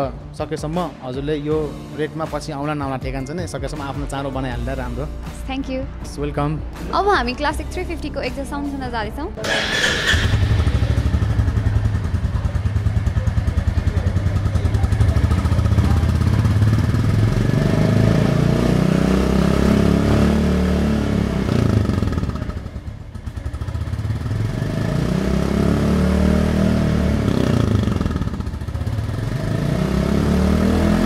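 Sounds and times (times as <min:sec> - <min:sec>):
motorcycle engine idling and revving: 0:00.0 - 0:05.5, 0:06.8 - 0:31.0.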